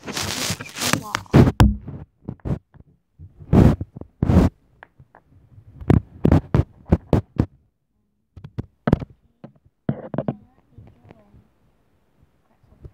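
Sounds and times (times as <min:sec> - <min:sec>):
frozen plastic egg knocked on surface: 0:01.0 - 0:02.0.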